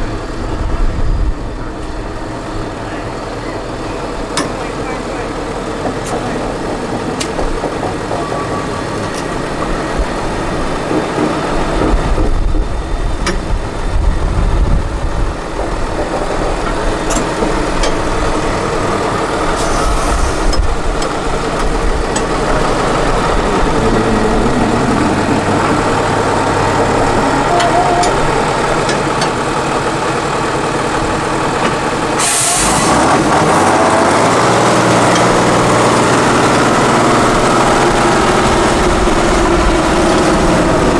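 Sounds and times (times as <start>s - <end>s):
diesel truck engine under load: 0.0s - 40.9s
short hisses: 19.6s - 20.5s.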